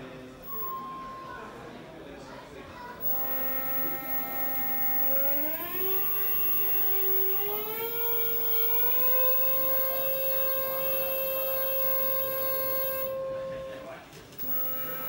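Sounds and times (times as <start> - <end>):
electronic tone sliding up: 3.0 - 13.4, 14.4 - 15.0.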